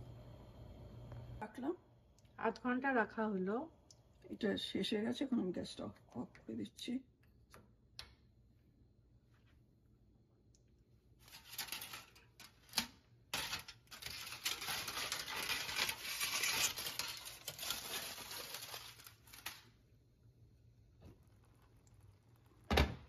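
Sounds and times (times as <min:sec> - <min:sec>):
crinkling handling noise: 0:11.1 - 0:19.8.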